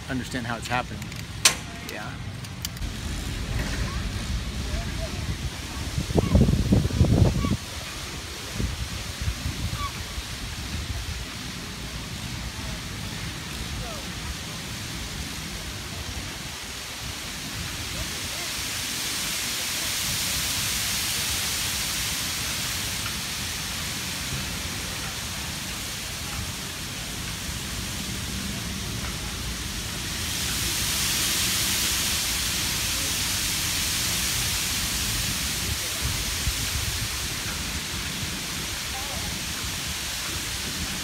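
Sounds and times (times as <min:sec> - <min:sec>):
wind rustling metal tabs and leaves: 0:00.0 - 0:12.3
low rumble: 0:01.6 - 0:07.5.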